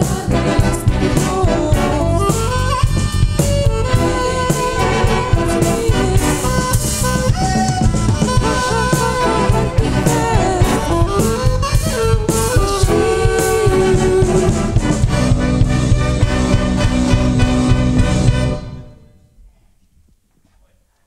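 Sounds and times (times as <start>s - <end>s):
people singing: 0.0s - 2.4s, 3.9s - 7.1s, 8.4s - 15.3s
drum kit beat: 0.0s - 18.9s
big band brass: 0.0s - 19.2s.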